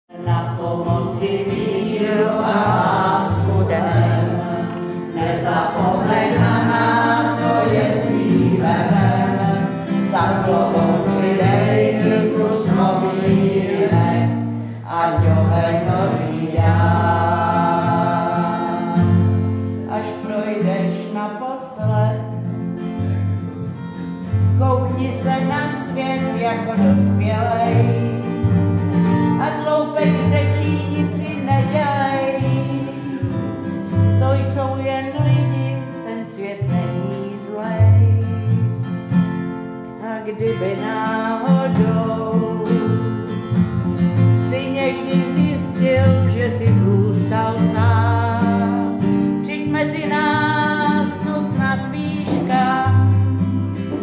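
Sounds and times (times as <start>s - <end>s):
woman singing: 0.1s - 19.0s, 24.6s - 28.0s, 40.0s - 43.1s, 44.4s - 53.2s
instrumental accompaniment: 0.2s - 19.9s, 48.5s - 54.0s.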